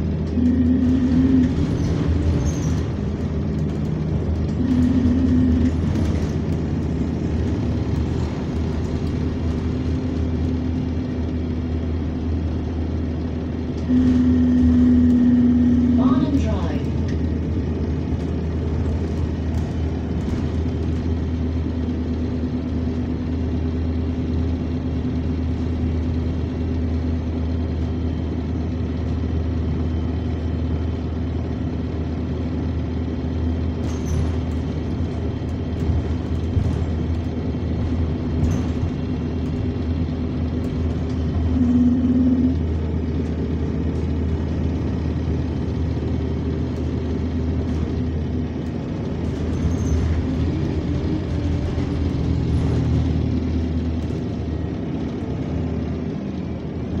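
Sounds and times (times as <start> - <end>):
bus engine drone: 0.0 - 57.0.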